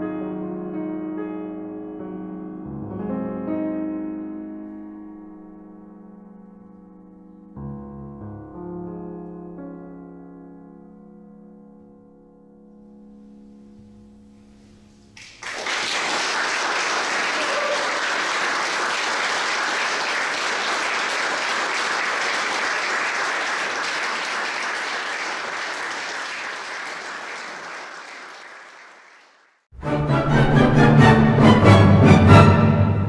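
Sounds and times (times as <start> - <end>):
audience applause: 15.2 - 29.6.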